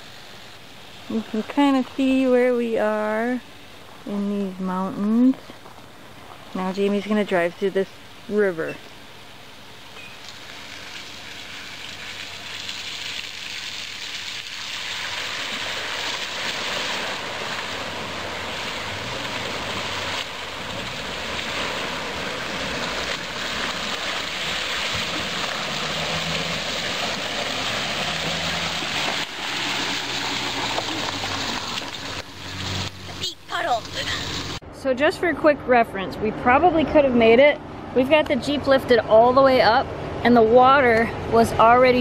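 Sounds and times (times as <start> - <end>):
low engine hum: 0.0 - 42.0
water rushing and splashing: 9.5 - 34.6.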